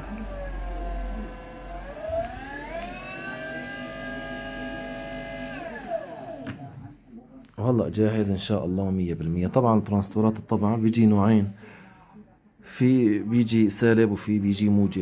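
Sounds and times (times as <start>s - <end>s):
electric motor whine: 0.0s - 6.8s.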